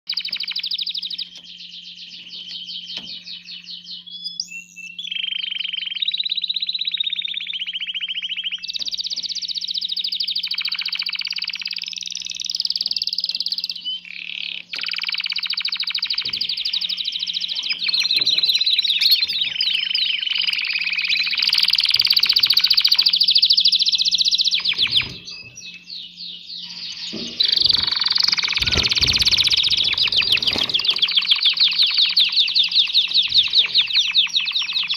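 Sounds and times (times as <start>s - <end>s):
canary singing trills: 0.1s - 34.9s.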